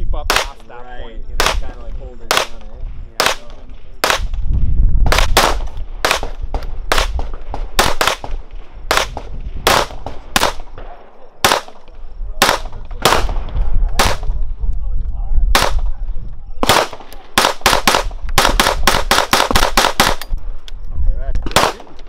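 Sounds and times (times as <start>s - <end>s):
low rumble: 1.1s - 17.3s
gunshots in quick succession: 3.2s - 4.4s, 5.0s - 11.8s, 12.4s - 14.3s, 15.5s - 15.9s, 16.6s - 20.2s, 21.5s - 22.0s.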